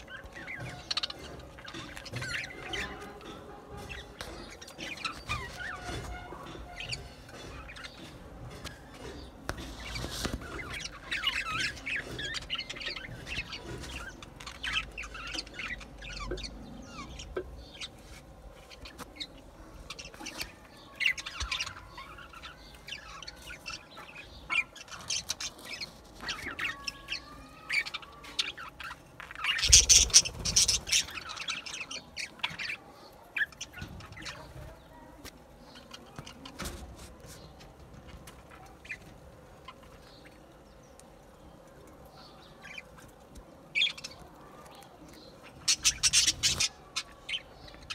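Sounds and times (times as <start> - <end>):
budgerigars chattering: 19.9 - 34.5, 45.3 - 47.9.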